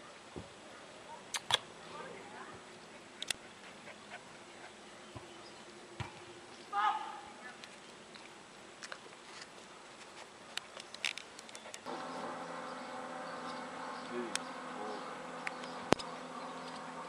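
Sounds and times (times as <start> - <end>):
sharp click: 1.3 - 1.6, 15.4 - 16.8
steady even buzz: 11.8 - 17.0.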